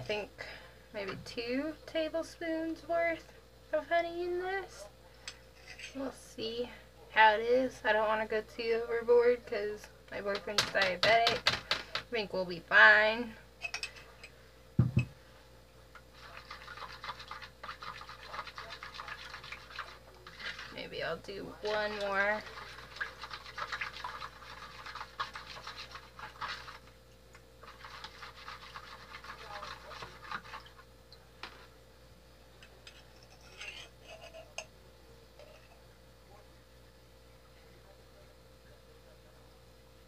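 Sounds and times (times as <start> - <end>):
spoon stirring in plastic bowl: 10.2 - 12.1, 16.0 - 27.0, 27.6 - 31.8, 32.6 - 34.7.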